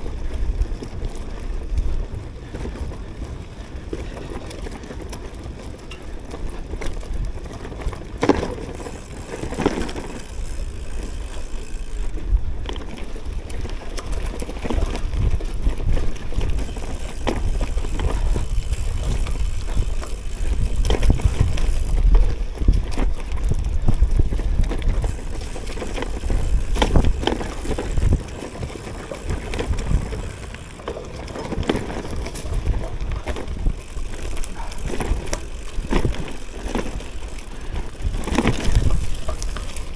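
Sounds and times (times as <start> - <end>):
bike rattling and knocking: 0.0 - 39.9
tyres rumbling on rough ground: 0.0 - 39.9.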